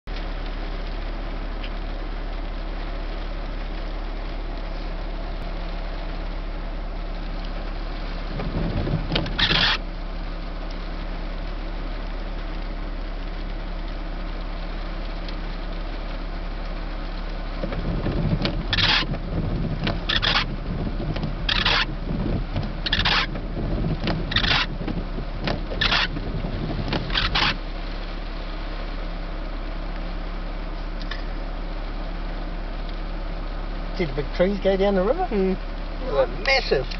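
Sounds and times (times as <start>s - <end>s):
car engine idling: 0.1s - 36.9s
rumble: 0.1s - 36.9s.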